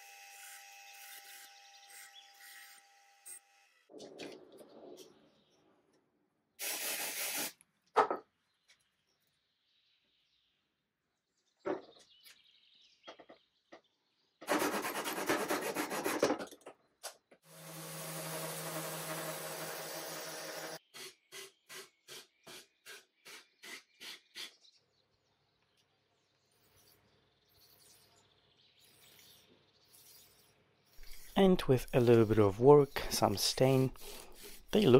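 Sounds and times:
loud rasping burst: 0:17.5 - 0:20.8
orbital sander whirring: 0:17.5 - 0:20.8
regular short strokes: 0:28.8 - 0:34.9.

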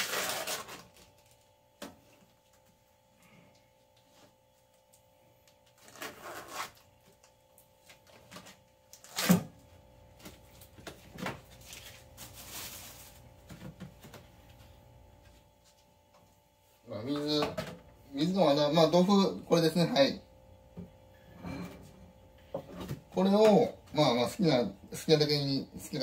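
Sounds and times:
plastic film rustling: 0:00.0 - 0:01.5, 0:10.5 - 0:13.4
faint steady hum: 0:00.0 - 0:26.0.

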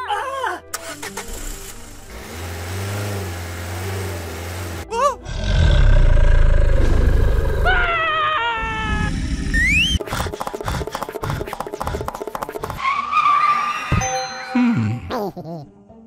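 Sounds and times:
loud monster roar: 0:05.2 - 0:08.0.

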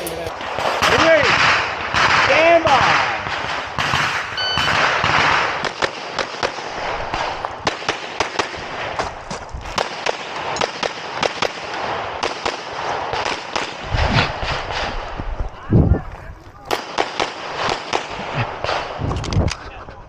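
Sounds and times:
rapid pistol shots: 0:00.4 - 0:09.0, 0:09.7 - 0:15.0, 0:16.7 - 0:19.0
shot timer beep: 0:04.4 - 0:04.9.

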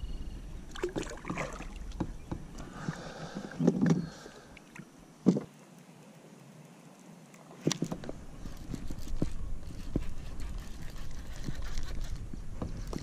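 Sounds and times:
fishing gear knocks and rustles: 0:07.6 - 0:10.0, 0:11.5 - 0:13.0.

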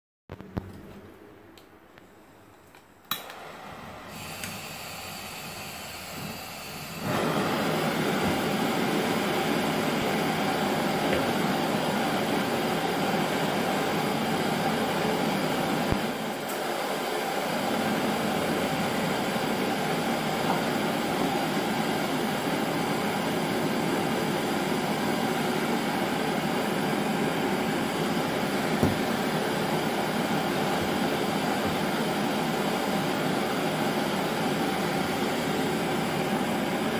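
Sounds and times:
torch igniter click: 0:02.7 - 0:03.4, 0:04.3 - 0:04.7
gas torch hissing: 0:03.1 - 0:36.9.

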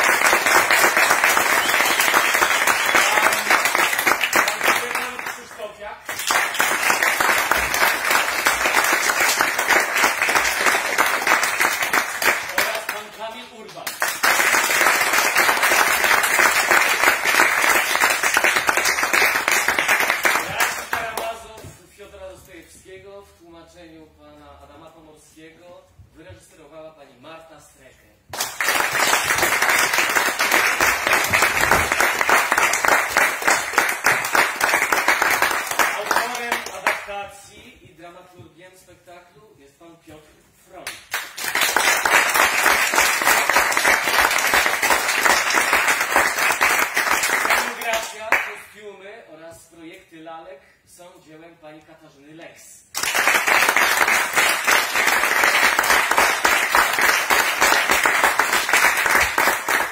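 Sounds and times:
audience applauding: 0:00.0 - 0:13.2, 0:13.9 - 0:21.3, 0:28.3 - 0:37.0, 0:41.1 - 0:48.5, 0:53.0 - 0:59.9.

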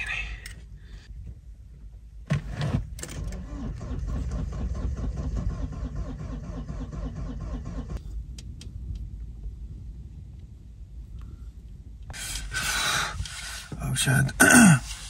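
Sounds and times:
diesel engine cranking: 0:02.3 - 0:08.0.

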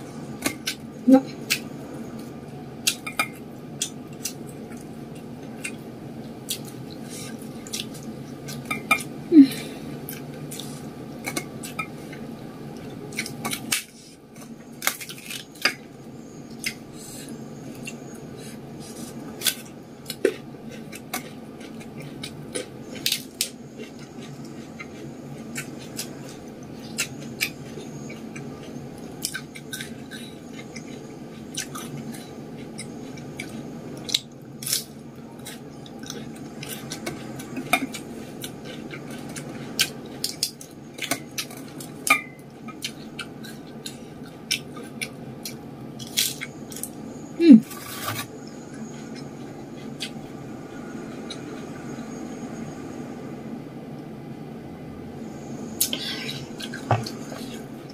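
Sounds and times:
steady low hum: 0:00.0 - 0:57.9.

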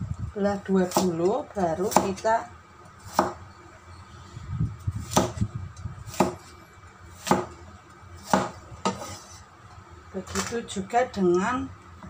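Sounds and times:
cleaver chopping on wooden board: 0:05.0 - 0:05.4, 0:06.1 - 0:06.5, 0:07.2 - 0:07.5, 0:08.2 - 0:09.1.

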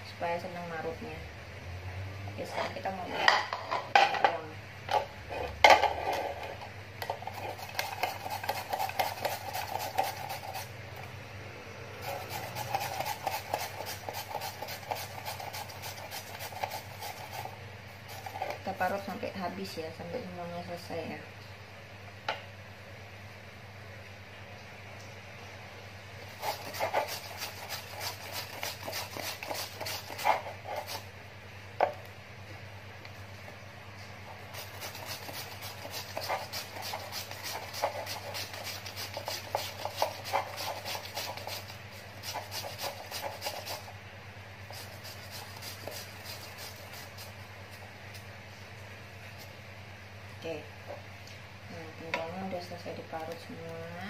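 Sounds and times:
grating on a plastic grater: 0:07.1 - 0:10.7, 0:12.0 - 0:19.1, 0:26.3 - 0:31.1, 0:34.5 - 0:44.0, 0:44.7 - 0:47.4.

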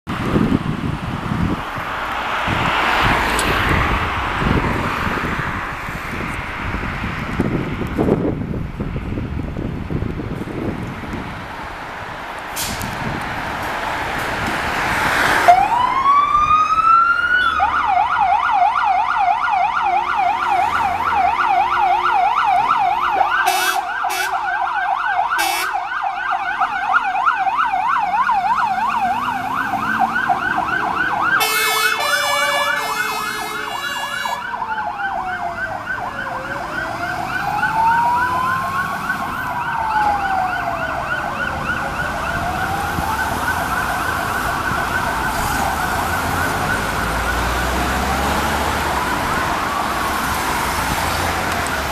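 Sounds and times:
siren rising and falling wail: 0:00.4 - 0:06.8, 0:14.0 - 0:51.9
siren warbling yelp: 0:15.5 - 0:47.6.

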